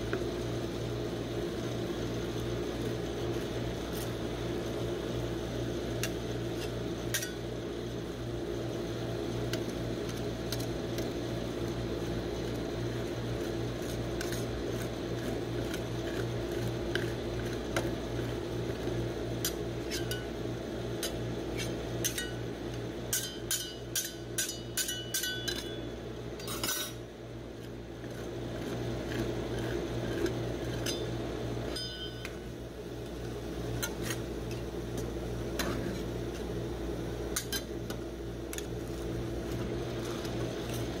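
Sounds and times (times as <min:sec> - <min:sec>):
refrigeration unit hum: 0:00.0 - 0:41.0
metal spatulas tapping and scraping: 0:06.0 - 0:07.4, 0:19.4 - 0:20.3, 0:21.0 - 0:22.4, 0:23.1 - 0:27.0, 0:28.0 - 0:32.4, 0:33.8 - 0:36.5, 0:37.4 - 0:38.7.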